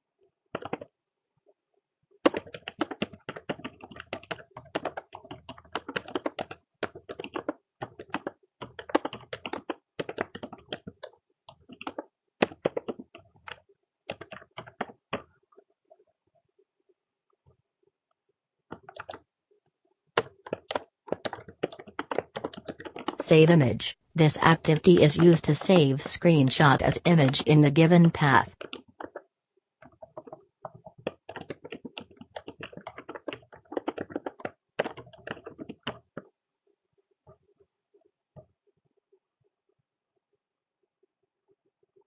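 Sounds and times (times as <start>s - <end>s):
typing on computer keyboard: 0.5s - 1.0s, 2.2s - 15.6s, 18.7s - 19.3s, 20.1s - 23.2s, 26.9s - 36.4s.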